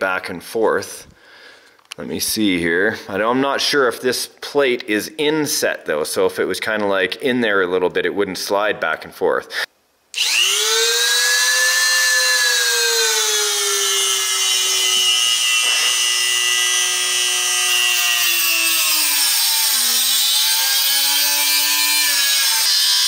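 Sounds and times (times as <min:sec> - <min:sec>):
rotary tool grinding metal: 0:10.2 - 0:23.0.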